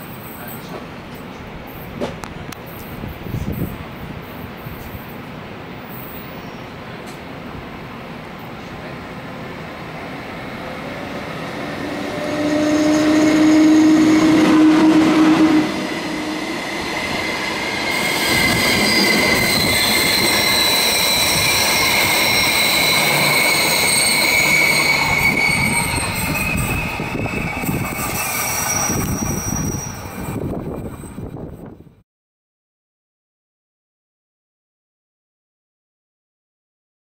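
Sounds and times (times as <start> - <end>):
electric locomotive hum: 0.7 - 32.0
high wheel squeal: 10.7 - 31.7.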